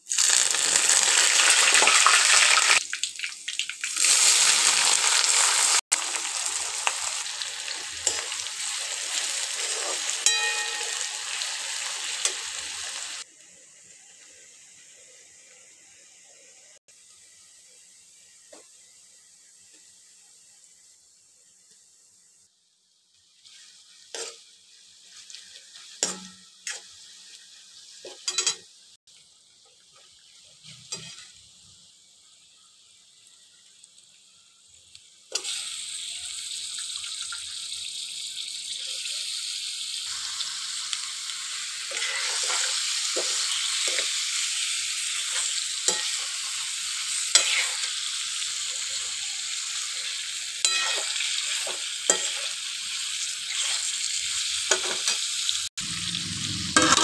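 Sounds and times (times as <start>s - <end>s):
chicken sizzling in hot oil: 0.0s - 57.0s
onions frying in oil: 0.0s - 57.0s
spoon scraping pan: 9.2s - 11.1s, 30.6s - 31.4s, 41.9s - 44.3s, 47.3s - 47.9s, 50.6s - 52.6s, 54.7s - 55.2s.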